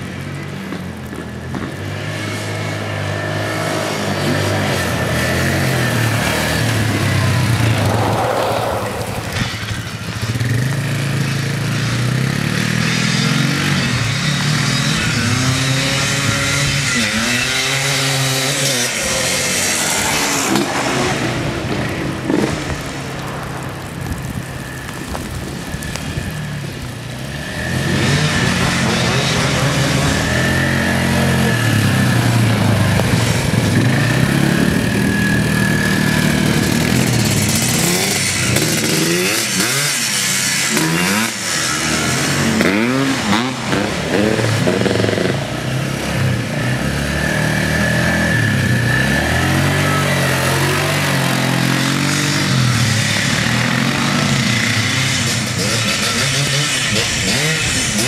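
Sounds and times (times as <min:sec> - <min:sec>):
quad bike engines revving: 0:00.0 - 0:58.0.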